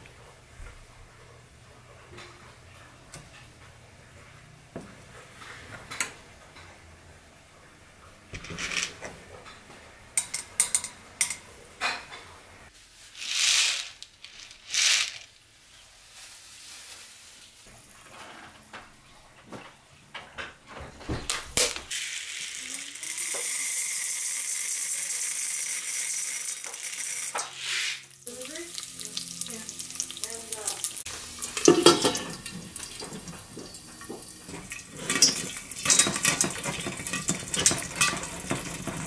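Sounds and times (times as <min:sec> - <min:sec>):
kernels clicking into oil: 0:08.3 - 0:09.1, 0:10.2 - 0:11.4, 0:13.2 - 0:15.4, 0:21.6 - 0:27.6, 0:28.2 - 0:39.0
utensils clinking on metal pot: 0:10.2 - 0:12.2, 0:31.4 - 0:39.0.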